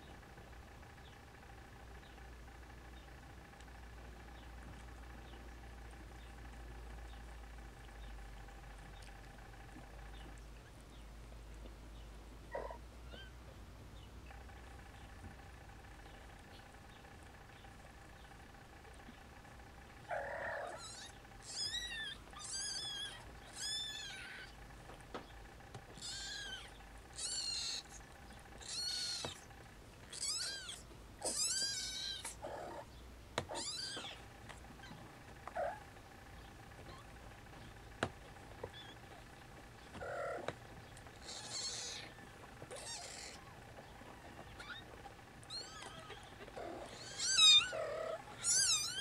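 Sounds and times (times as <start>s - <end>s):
kittens mewing: 12.5s - 13.5s, 20.0s - 24.7s, 25.8s - 36.0s, 36.7s - 37.8s, 38.5s - 49.0s
lower short kitten calls: 26.0s - 28.0s, 28.6s - 29.4s, 45.5s - 46.3s, 46.9s - 49.0s.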